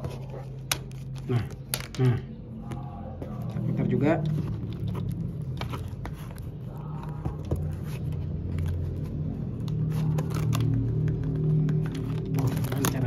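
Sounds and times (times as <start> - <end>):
plastic fastener clicking and scraping: 7.6 - 13.0.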